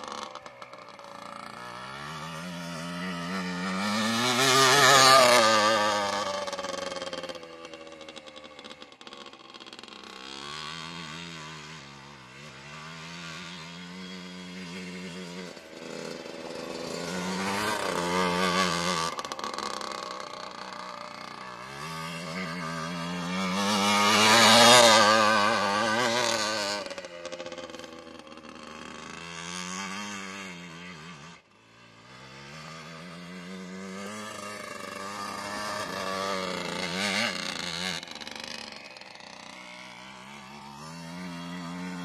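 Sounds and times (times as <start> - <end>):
atv engine revving: 0.0 - 42.0.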